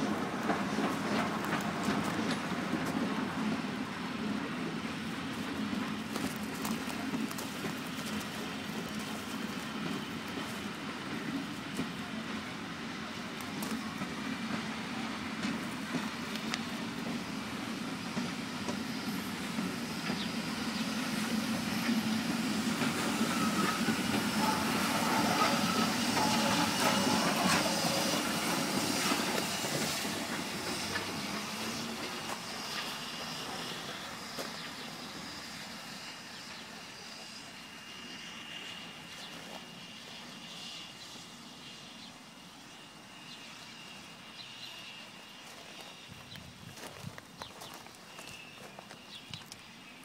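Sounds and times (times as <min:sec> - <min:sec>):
steam train passing: 0:00.0 - 0:50.0
wheels clicking over rail joints: 0:05.3 - 0:12.2.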